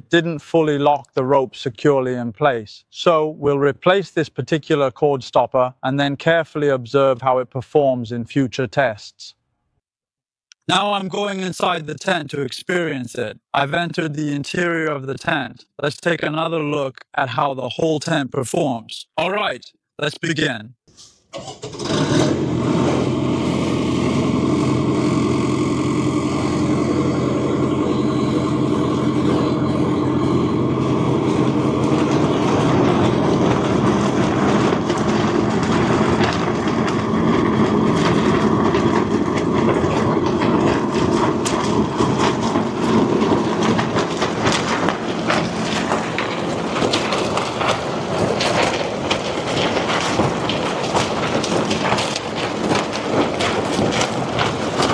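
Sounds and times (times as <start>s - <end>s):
low mechanical hum: 22.2s - 54.9s
tent fabric flapping: 29.3s - 54.9s.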